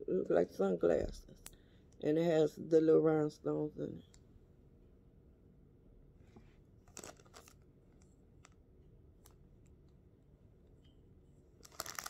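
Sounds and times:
faint rustles and clicks from handling: 6.2s - 8.6s, 11.6s - 12.0s.

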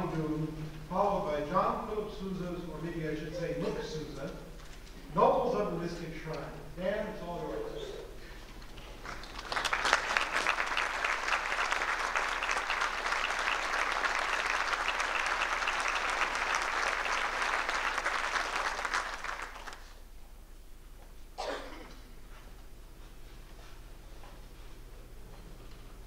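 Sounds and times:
audience applauding: 8.6s - 20.0s.

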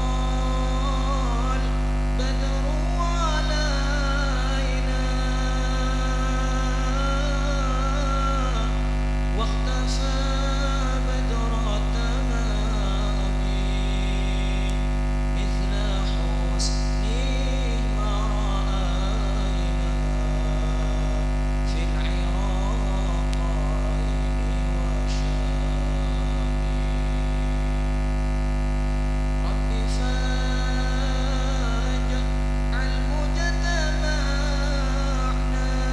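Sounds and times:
electrical mains hum: 0.0s - 35.9s.

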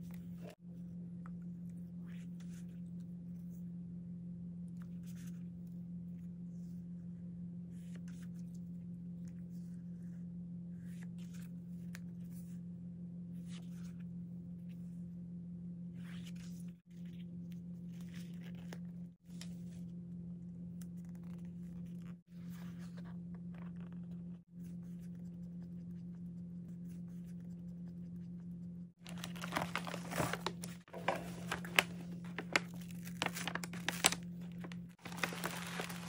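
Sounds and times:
steady low hum: 0.0s - 36.0s
sticker sheets rustling: 29.1s - 36.0s.

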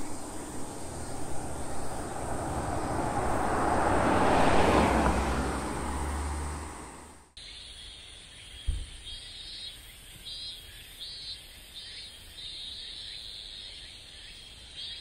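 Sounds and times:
car driving past: 0.0s - 7.4s.

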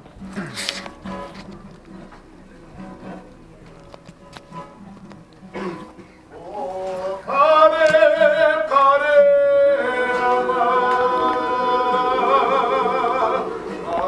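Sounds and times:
person singing unaccompanied: 5.7s - 14.0s.

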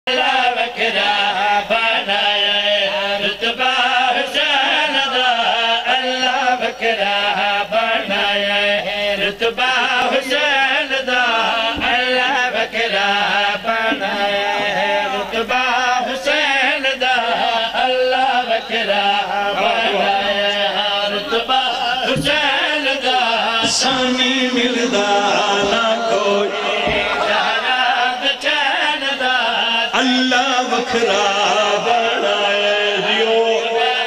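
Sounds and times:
person chanting melismatic melody: 18.2s - 34.0s.

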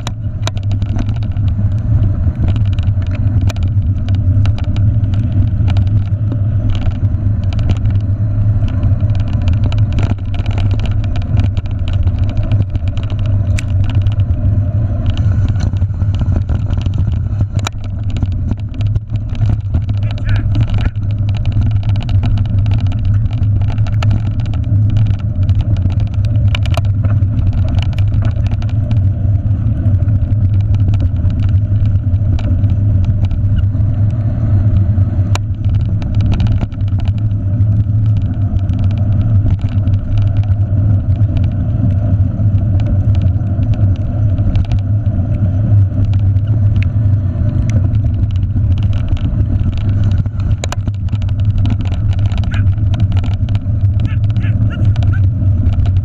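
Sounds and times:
bike knocks and rattles: 0.0s - 56.0s
wind rumble: 0.0s - 56.0s.

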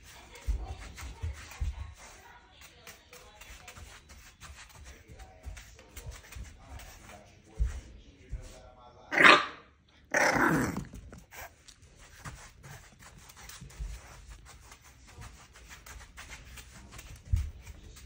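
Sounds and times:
puppy barking: 9.1s - 10.7s.

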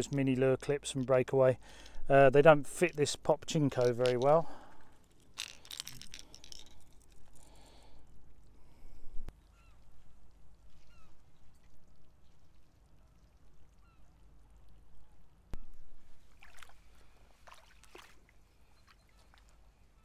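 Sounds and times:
faint short bird calls: 9.4s - 9.8s, 10.8s - 11.2s.

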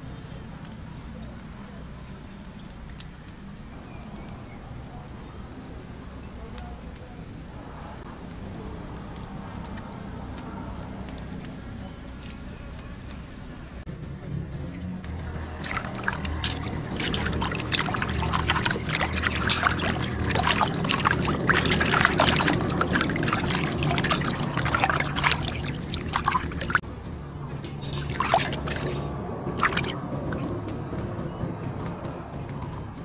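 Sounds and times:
water splashing in basin: 14.7s - 26.8s, 27.7s - 31.1s.

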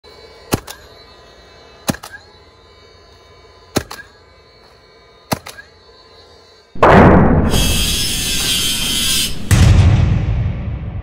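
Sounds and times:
flywheel whine: 0.0s - 6.8s
nail gun firing: 0.5s - 0.8s, 1.8s - 2.2s, 3.7s - 4.1s, 5.3s - 5.6s.

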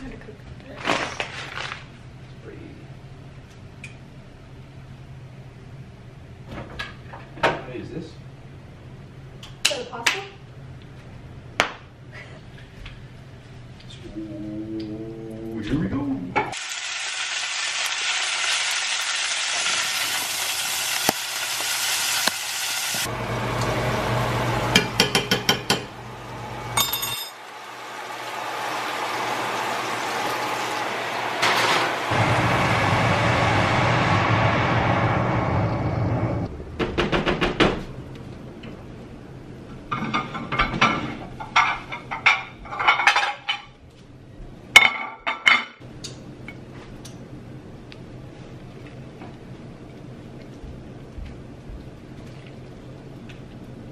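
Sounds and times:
steak sizzling in skillet: 16.4s - 25.0s, 27.4s - 33.9s
low hum: 25.6s - 37.2s
pans and plates clinking: 26.8s - 27.4s.

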